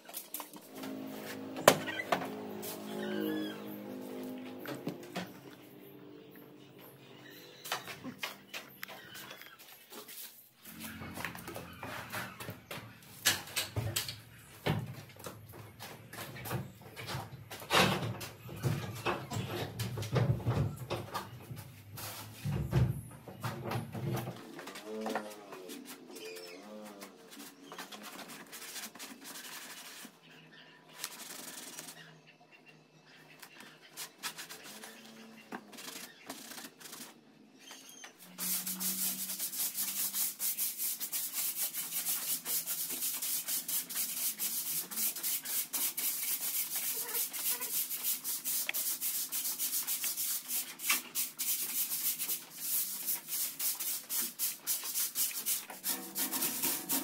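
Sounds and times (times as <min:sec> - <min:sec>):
scraping and rubbing strokes: 0:00.0 - 0:05.7, 0:24.6 - 0:32.0, 0:33.6 - 0:37.2, 0:38.2 - 0:57.0.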